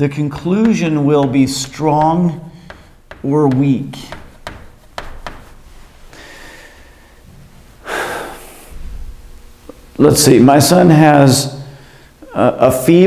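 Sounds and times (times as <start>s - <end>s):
chalk writing on blackboard: 0.4s - 5.8s
person breathing loudly: 6.1s - 7.2s, 7.8s - 8.8s.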